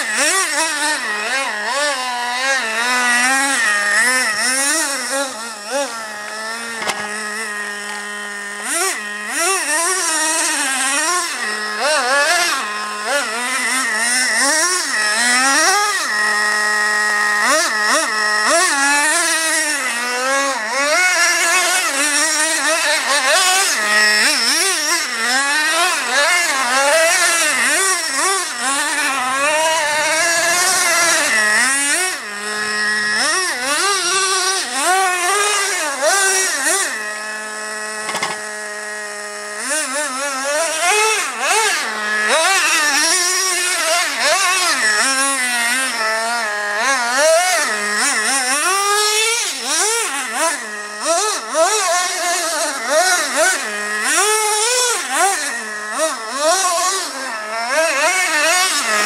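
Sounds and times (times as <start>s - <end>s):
model truck engine revving: 0.0s - 59.0s.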